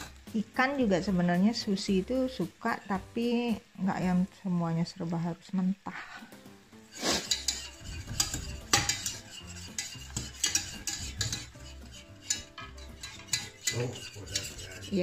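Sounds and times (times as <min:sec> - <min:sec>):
food sizzling: 0:00.0 - 0:15.0
utensil scraping pan: 0:06.8 - 0:15.0
utensil clinking against pan: 0:07.0 - 0:15.0.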